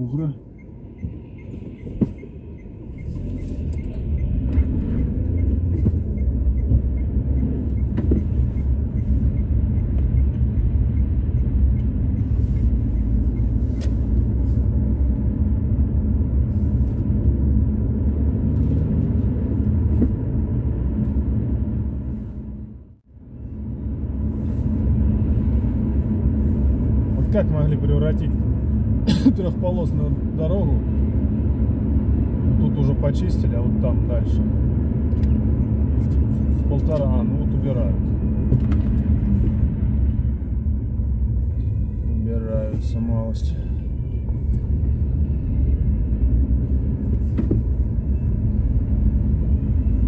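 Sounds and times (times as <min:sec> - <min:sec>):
car engine and tyre rumble: 0:00.0 - 0:50.0.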